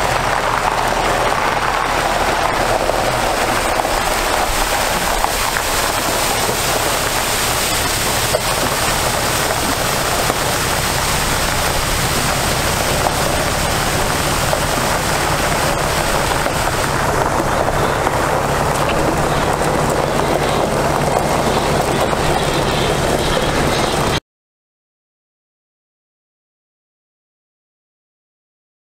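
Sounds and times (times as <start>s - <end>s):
water pouring onto gravel: 0.0s - 22.8s
diesel engine running: 0.0s - 24.2s.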